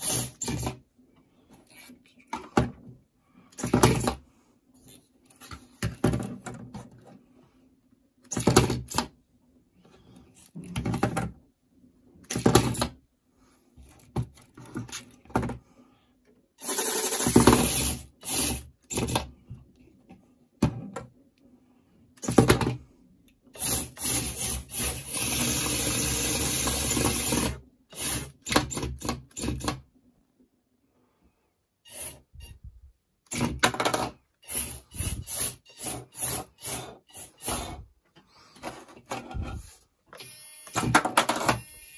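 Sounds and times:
small robot motors whirring: 16.6 - 18.6, 31.9 - 32.6, 34.4 - 37.8, 40.2 - 41.9.

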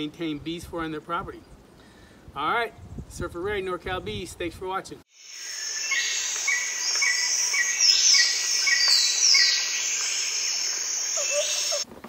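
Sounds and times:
insects chirring: 5.1 - 11.9
descending whistled bird notes: 5.2 - 11.8
bird chirping: 5.2 - 11.9.

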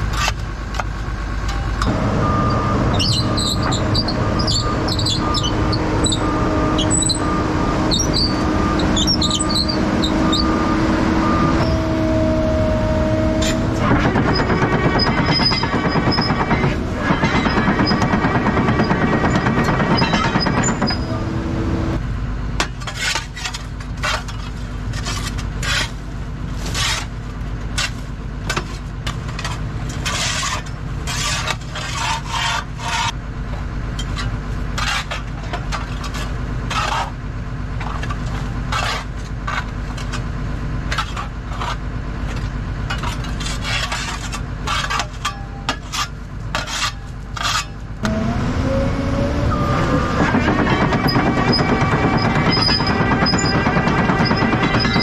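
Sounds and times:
excavator diesel engine running: 0.0 - 55.0
excavator tracks moving: 0.0 - 55.0
hand tool scraping steel: 1.8 - 10.6, 13.2 - 21.4, 26.6 - 27.1, 29.4 - 33.2, 34.0 - 37.2, 37.8 - 40.2, 40.9 - 48.0, 50.2 - 55.0.

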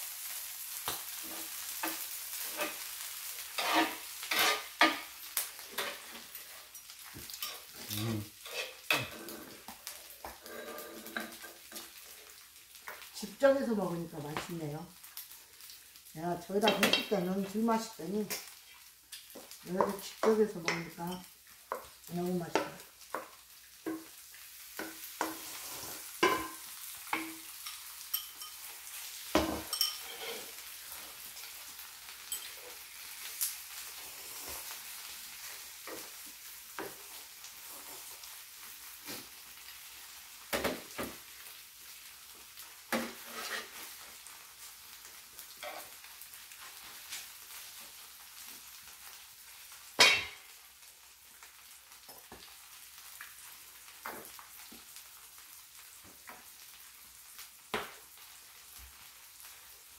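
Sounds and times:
food sizzling on a griddle: 0.0 - 59.9
utensils scraping a pan: 1.2 - 2.8, 3.4 - 11.9, 24.8 - 28.8, 29.5 - 31.2, 42.9 - 44.0, 45.6 - 46.0.

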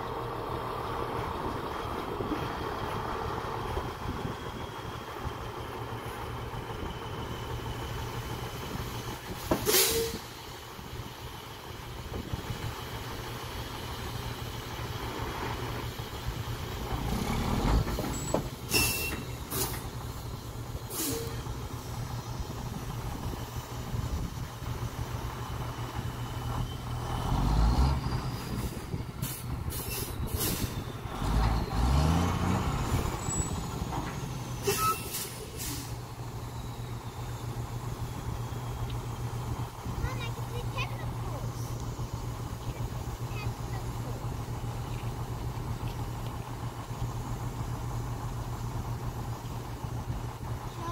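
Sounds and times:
diesel engines running: 0.0 - 50.9
engine revving up: 16.8 - 18.0, 27.0 - 28.7, 31.0 - 34.8.

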